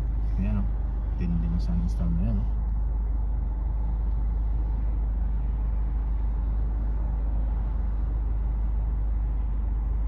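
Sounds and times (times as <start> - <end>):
car interior rumble and hiss: 0.0 - 10.0.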